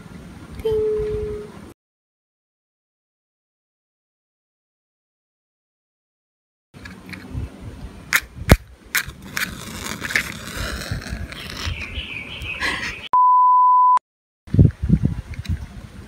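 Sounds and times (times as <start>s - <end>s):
match striking on matchbox: 8.2s - 11.7s
electronic beep tone: 13.1s - 14.0s.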